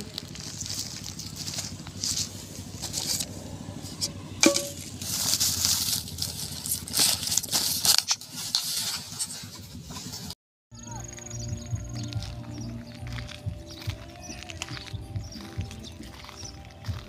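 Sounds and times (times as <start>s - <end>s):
plastic bags rustling: 0.0s - 3.3s, 4.4s - 10.2s.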